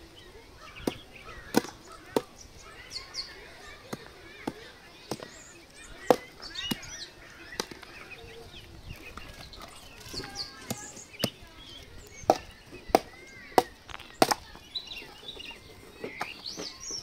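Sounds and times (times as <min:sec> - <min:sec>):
hatchet chopping wood: 0:00.8 - 0:02.4, 0:06.0 - 0:06.9, 0:12.2 - 0:14.4.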